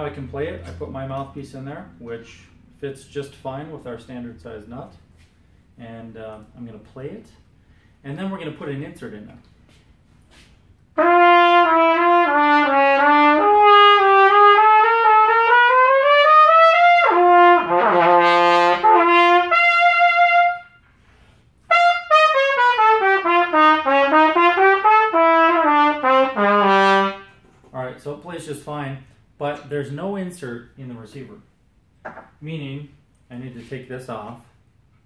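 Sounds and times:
trumpet playing: 0:10.9 - 0:21.0, 0:21.6 - 0:27.4.

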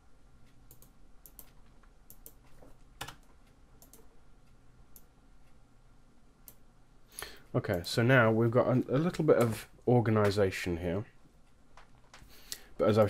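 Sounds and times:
faint steady low hum: 0:00.0 - 0:13.0
computer mouse clicks: 0:00.5 - 0:04.1.

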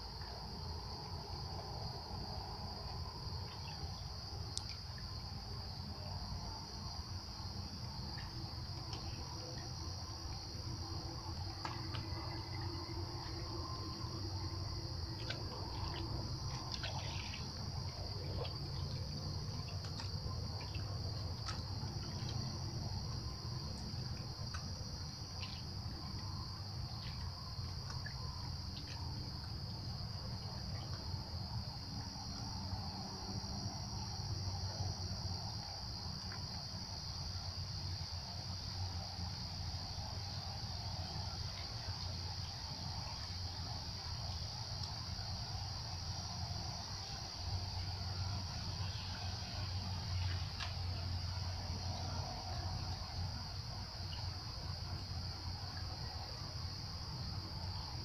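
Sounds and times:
crickets trilling: 0:00.0 - 0:58.0
faint ticks: 0:04.5 - 0:05.0.

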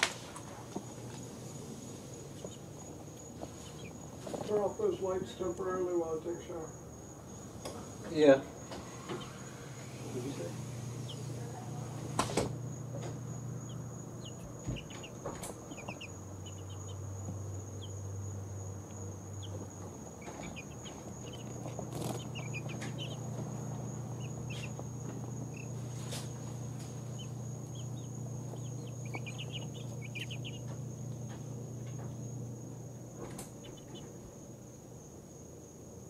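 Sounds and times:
baby chicks peeping: 0:00.6 - 0:34.7
low hum: 0:08.9 - 0:35.0.

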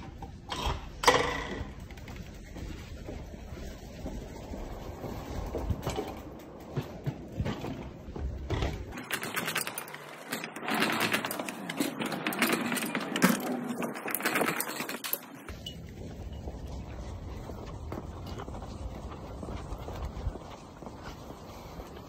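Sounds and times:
bike knocks and rattles: 0:00.0 - 0:02.4, 0:05.5 - 0:15.6.

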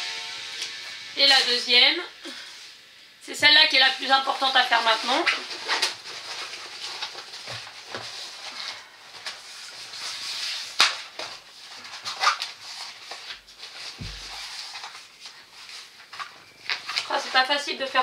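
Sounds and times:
canvas and paper crinkling: 0:04.0 - 0:18.0
dull thump: 0:14.0 - 0:14.3.

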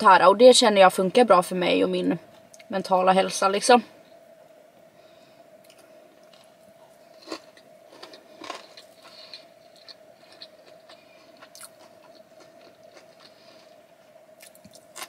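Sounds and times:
faint steady hum: 0:00.0 - 0:15.0
chewing mouth sounds: 0:07.2 - 0:13.8.

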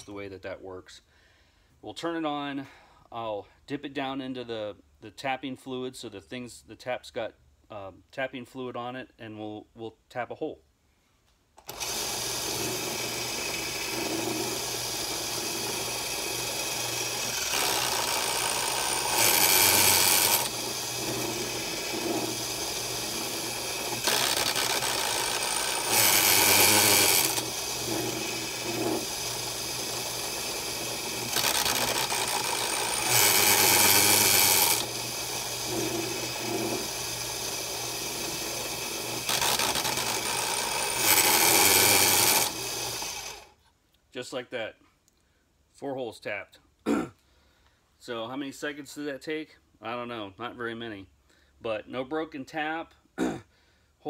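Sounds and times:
drill press tapping holes: 0:11.6 - 0:43.4
drill press motor running: 0:11.6 - 0:43.5.

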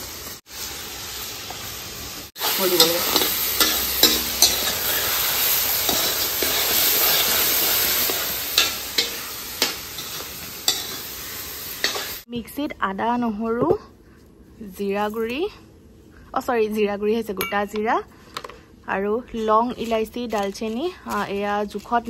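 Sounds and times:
meat sizzling in a wok: 0:00.0 - 0:12.3.

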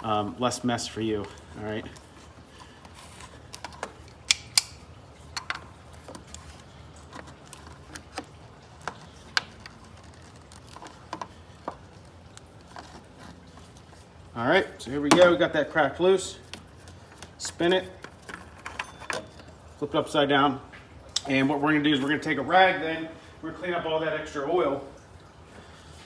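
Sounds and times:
tool clicking on oil filter: 0:03.4 - 0:09.8.

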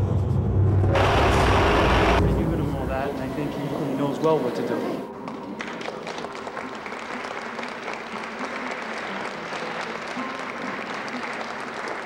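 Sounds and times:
crowd applauding: 0:05.1 - 0:12.0.

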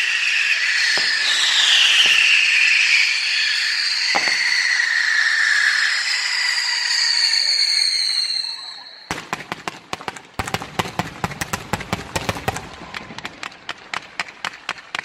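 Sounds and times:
whistling fireworks: 0:00.0 - 0:15.0
firework pops: 0:01.0 - 0:02.8, 0:04.1 - 0:04.8.

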